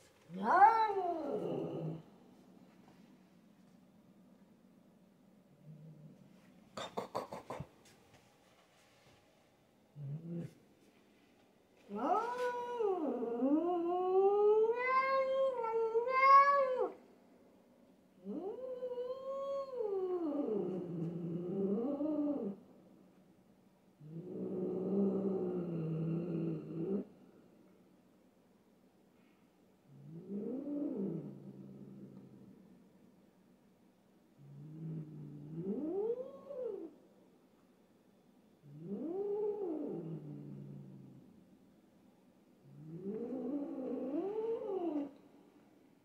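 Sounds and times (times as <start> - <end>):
cat yowling: 0.3 - 2.0, 11.9 - 13.2, 14.4 - 17.0.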